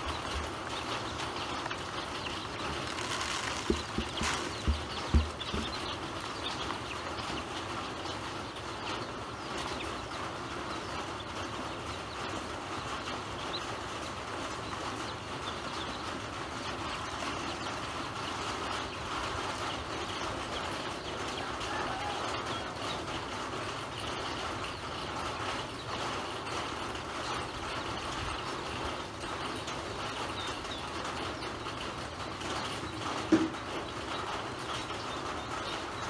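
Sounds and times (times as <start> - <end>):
pecking in plastic basin: 0.0 - 6.8
ducklings peeping: 0.0 - 36.0
dull thumps: 2.8 - 6.3.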